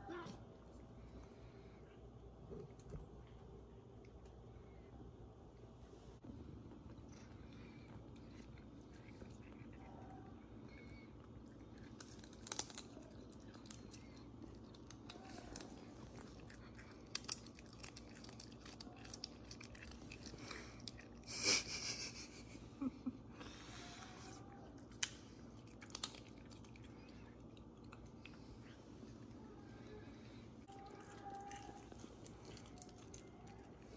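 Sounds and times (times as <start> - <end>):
animal chewing and crunching meat: 6.6 - 21.3, 24.6 - 29.5, 30.6 - 33.9.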